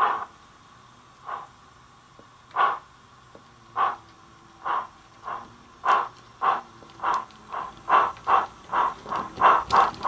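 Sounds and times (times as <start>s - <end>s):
model steam locomotive chuffs: 0.0s - 10.0s.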